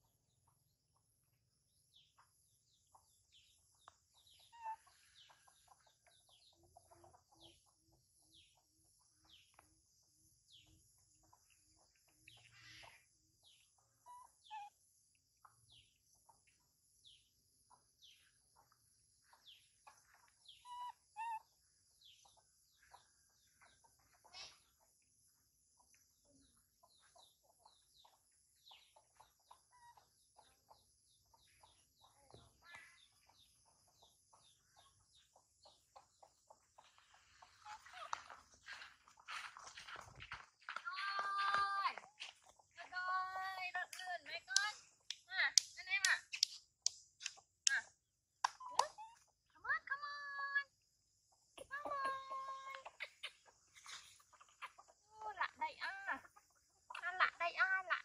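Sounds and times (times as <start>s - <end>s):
soft clucks: 51.2s - 58.0s.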